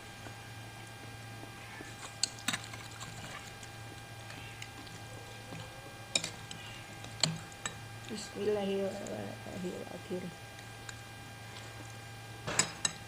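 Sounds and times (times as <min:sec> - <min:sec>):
low electrical hum: 0:00.0 - 0:13.0
utensils clinking against bowl: 0:06.1 - 0:06.5.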